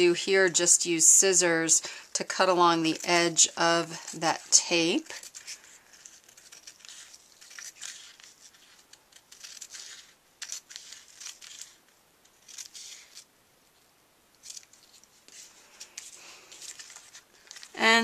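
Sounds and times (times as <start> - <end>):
scissors snipping paper: 3.9 - 13.3.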